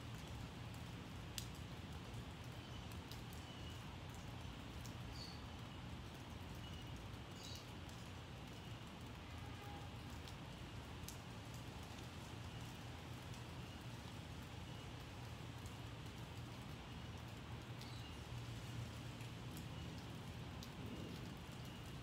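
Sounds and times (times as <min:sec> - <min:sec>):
light rain hiss: 0:00.0 - 0:22.0
drips ticking: 0:00.1 - 0:22.0.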